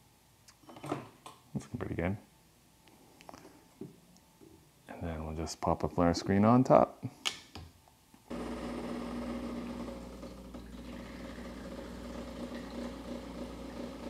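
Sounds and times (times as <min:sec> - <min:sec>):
espresso machine pump humming: 0:08.3 - 0:14.0.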